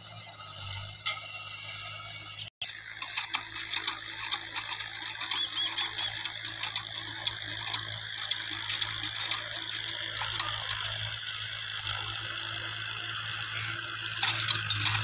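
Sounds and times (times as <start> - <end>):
hand pump mechanism clanking: 2.7 - 12.2, 14.0 - 15.0.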